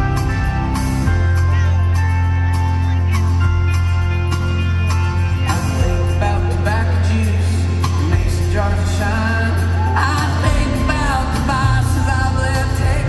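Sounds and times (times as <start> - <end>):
live country band: 0.0 - 13.0
man singing lead: 5.3 - 13.0.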